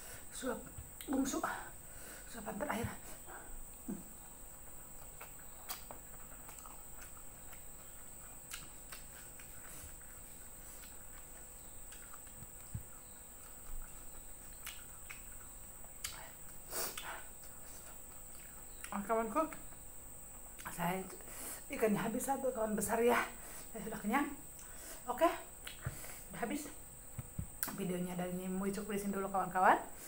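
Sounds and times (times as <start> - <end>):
chewing and smacking: 3.3 - 20.8, 25.6 - 26.1.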